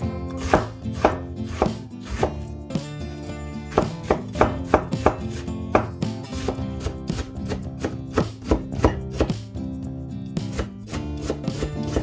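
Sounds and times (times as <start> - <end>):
background music: 0.0 - 12.0
knife chopping on cutting board: 0.3 - 2.5, 3.7 - 9.4, 10.4 - 12.0.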